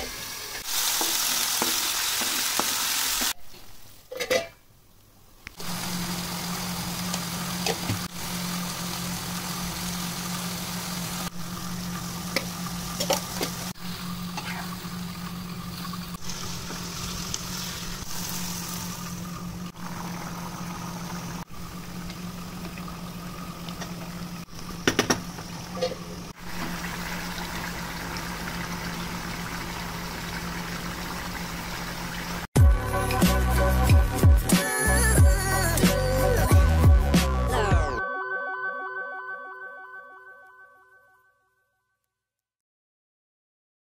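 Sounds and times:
curry simmering and sizzling: 0:00.0 - 0:04.0, 0:05.6 - 0:32.5
steel lid and utensils clinking: 0:04.1 - 0:04.6.

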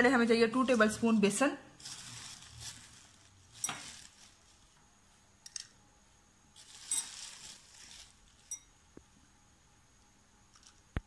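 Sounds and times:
flour scraping rustle: 0:00.5 - 0:04.8, 0:06.5 - 0:08.7.

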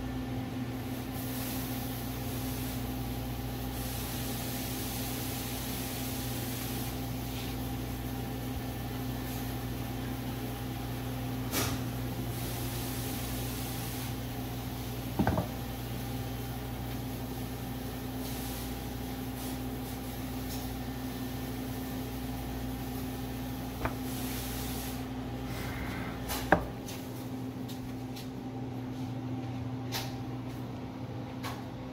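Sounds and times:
steady low hum: 0:00.0 - 0:31.9
wooden board knocking on countertop: 0:15.2 - 0:15.6.

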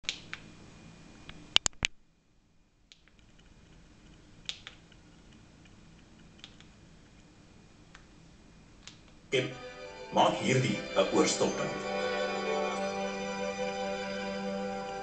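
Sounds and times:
sharp clicks: 0:02.9 - 0:06.8, 0:08.8 - 0:09.2.

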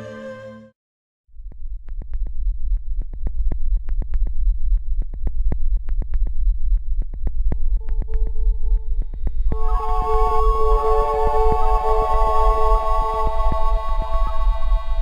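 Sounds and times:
held synth note: 0:00.0 - 0:00.7, 0:09.5 - 0:15.0
deep synthesized rumble: 0:01.3 - 0:15.0
rapid ticks: 0:01.4 - 0:10.5.

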